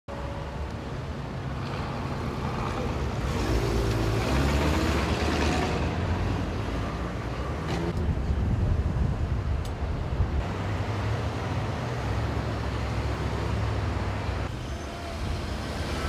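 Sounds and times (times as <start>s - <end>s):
road traffic: 0.1s - 16.0s.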